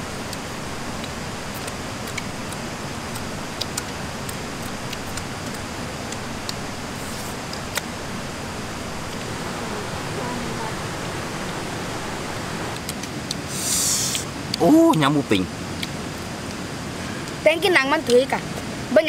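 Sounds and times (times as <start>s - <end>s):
stream rushing over rocks: 0.0s - 19.0s
small clicks and ticks: 0.2s - 6.6s.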